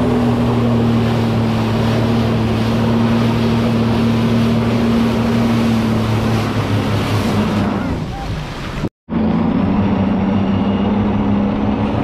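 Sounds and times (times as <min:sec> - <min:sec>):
water washing: 0:00.0 - 0:08.9
jet ski engine humming: 0:00.0 - 0:12.0.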